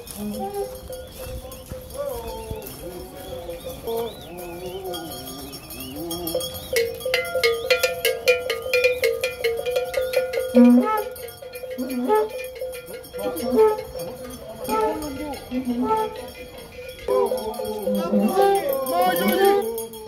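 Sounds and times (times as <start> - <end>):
people calling out: 0.0 - 9.0, 10.5 - 20.0
metal bells ringing rapidly: 0.0 - 20.0
group of people singing: 0.2 - 6.4, 13.2 - 20.0.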